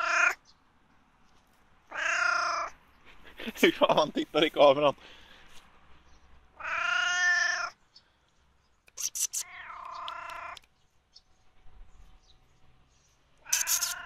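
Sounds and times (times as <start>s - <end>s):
cat meowing: 0.0s - 0.4s, 1.9s - 2.8s, 6.6s - 7.8s, 9.3s - 10.7s, 13.4s - 14.0s
quick clicks: 13.5s - 14.0s.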